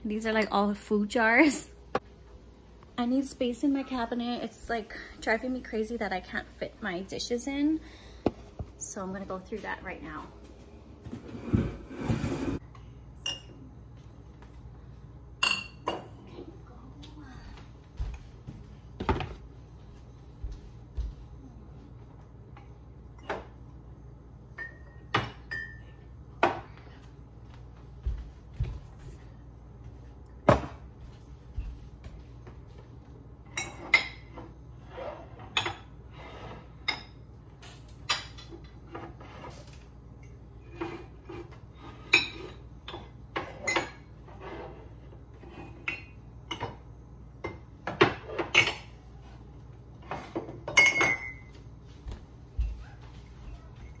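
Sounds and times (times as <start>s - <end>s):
glass jars clinking: 24.6s - 26.0s, 50.6s - 51.5s.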